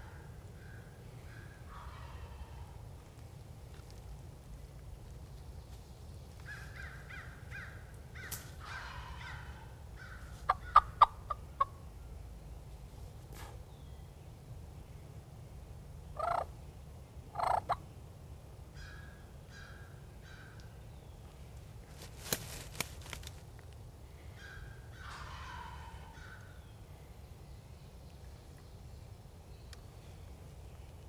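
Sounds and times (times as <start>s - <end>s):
turkey gobbling: 1.7s - 2.6s, 8.6s - 9.7s, 10.5s - 11.8s, 16.2s - 16.5s, 17.4s - 17.8s, 24.4s - 26.5s.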